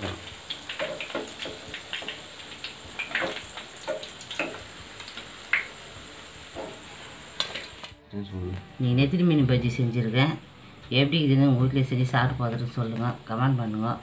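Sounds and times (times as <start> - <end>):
hot oil crackling and popping: 0.0 - 8.0.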